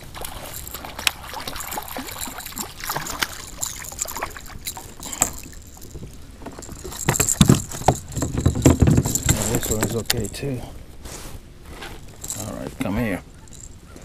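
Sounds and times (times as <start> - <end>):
clicks and rattles in kayak: 0.0 - 10.5, 12.1 - 14.0
heavy knocks on kayak: 7.0 - 9.8.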